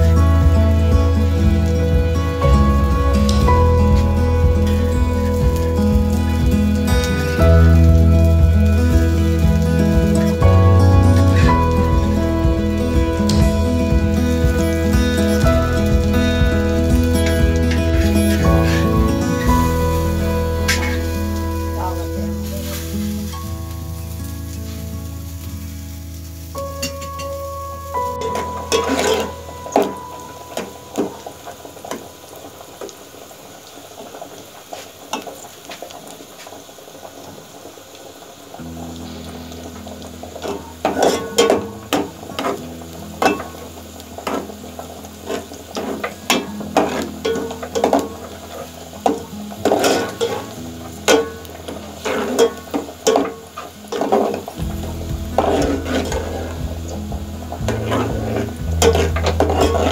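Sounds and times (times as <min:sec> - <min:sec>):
onions sizzling in hot oil: 0:00.0 - 0:59.9
metal ladle scraping pot: 0:28.2 - 0:29.9, 0:49.6 - 0:51.4, 0:55.4 - 0:56.6, 0:57.6 - 0:59.9.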